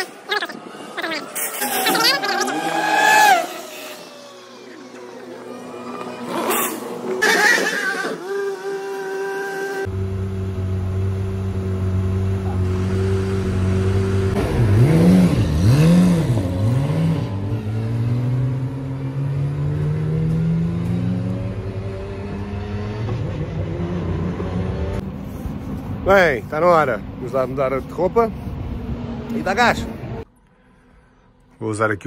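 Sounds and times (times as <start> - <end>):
race car engine revving: 0.6 - 25.0.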